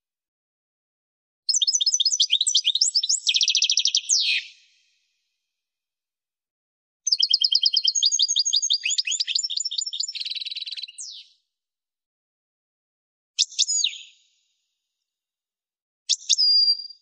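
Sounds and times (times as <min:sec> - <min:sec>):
finch singing trills: 0:01.5 - 0:04.6, 0:07.1 - 0:11.3, 0:16.1 - 0:17.0.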